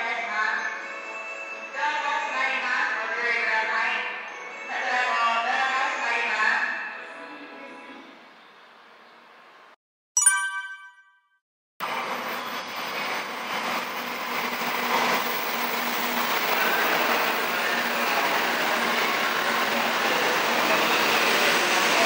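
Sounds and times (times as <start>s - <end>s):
train rushing: 12.0s - 22.0s.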